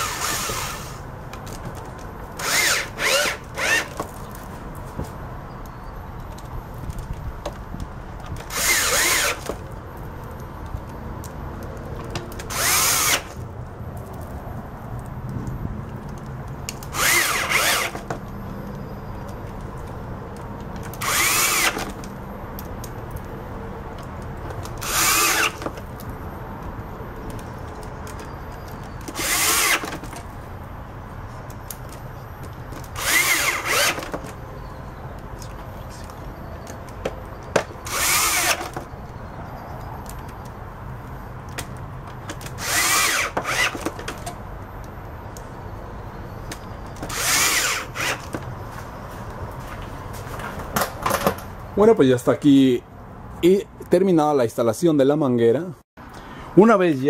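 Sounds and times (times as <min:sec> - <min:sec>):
power drill whirring: 0:00.0 - 0:01.0, 0:02.4 - 0:04.0, 0:08.5 - 0:09.6, 0:12.5 - 0:13.4, 0:16.9 - 0:18.1, 0:21.0 - 0:22.0, 0:24.8 - 0:25.8, 0:29.0 - 0:30.1, 0:33.0 - 0:34.3, 0:37.8 - 0:38.9, 0:42.5 - 0:44.0, 0:47.1 - 0:48.3.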